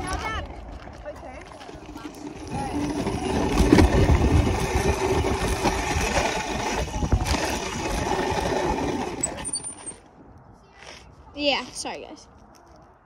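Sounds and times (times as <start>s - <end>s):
dirt bike engine running: 0.0s - 9.5s
wind rushing over microphone: 1.8s - 9.2s.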